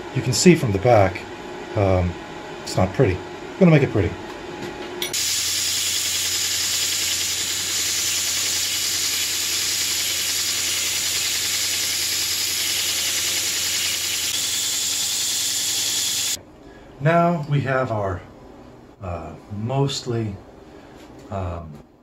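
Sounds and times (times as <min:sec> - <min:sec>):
belt grinder grinding metal: 0:05.2 - 0:16.4
motor humming: 0:05.2 - 0:16.4.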